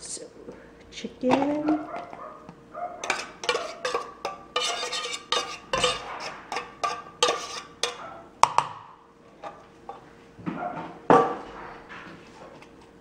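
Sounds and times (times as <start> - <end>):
metal spoon scraping tin can: 3.0 - 8.0.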